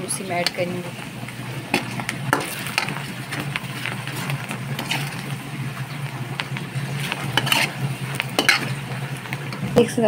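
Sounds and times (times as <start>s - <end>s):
onions sizzling in oil: 0.0s - 10.0s
metal ladle scraping a pan: 1.7s - 5.4s, 6.9s - 9.0s.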